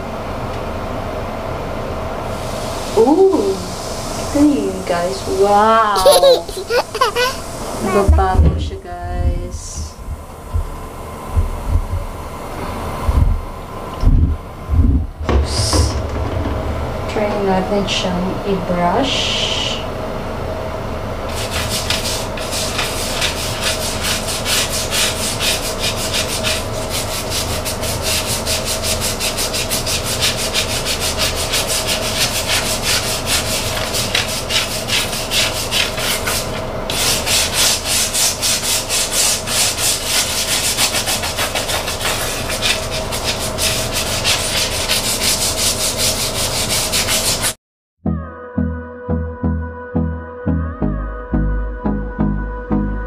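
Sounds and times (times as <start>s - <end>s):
plastic brush scrubbing tile floor: 6.0s - 8.3s, 21.3s - 47.6s.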